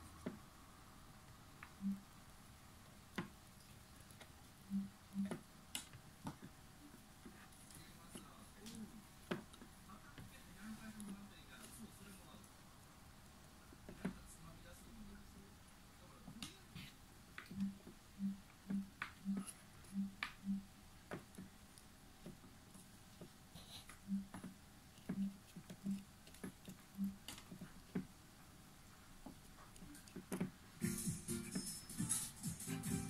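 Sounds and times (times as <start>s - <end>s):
fingers tapping circuit board: 4.7s - 6.5s, 17.4s - 21.4s, 24.1s - 28.1s
music: 30.8s - 33.0s.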